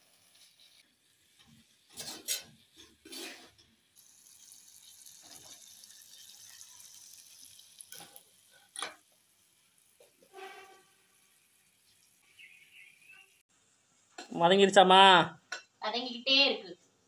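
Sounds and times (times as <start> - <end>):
vegetables sizzling in oil: 0.0 - 14.2
metal spatula scraping: 1.8 - 3.7, 10.2 - 11.2.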